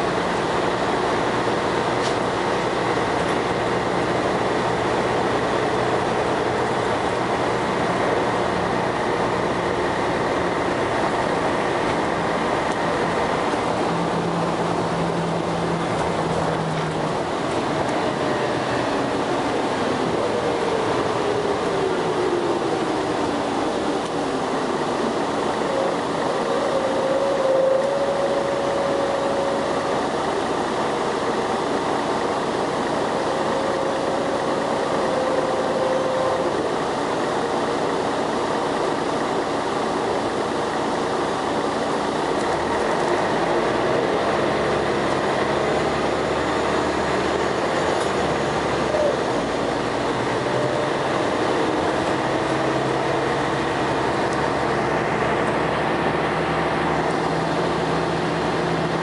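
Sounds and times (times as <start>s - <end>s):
bus diesel engine driving: 0.0s - 59.0s
gearbox whine: 0.4s - 39.4s.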